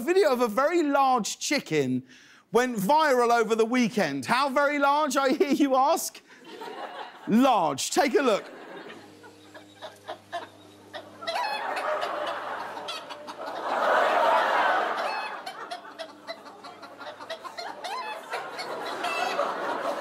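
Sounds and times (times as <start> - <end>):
audience laughing: 6.3 - 20.0
rooster clucking: 9.8 - 13.8, 14.5 - 20.0.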